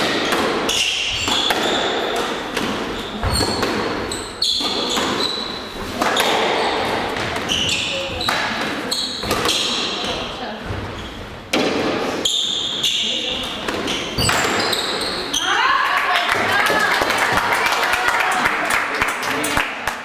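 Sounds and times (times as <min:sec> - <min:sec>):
squash ball smacking: 0:00.0 - 0:05.3
sneakers squeaking on wooden floor: 0:00.0 - 0:15.6.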